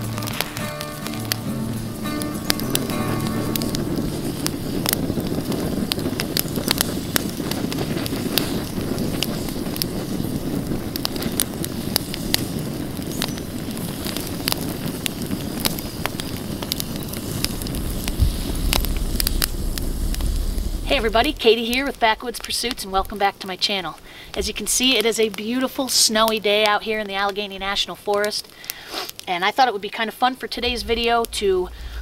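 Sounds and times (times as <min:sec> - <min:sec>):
rush of flames: 0:00.0 - 0:26.3, 0:30.5 - 0:32.0
campfire crackling and popping: 0:00.0 - 0:32.0
low rumble: 0:01.4 - 0:06.2, 0:16.1 - 0:23.2, 0:30.5 - 0:32.0.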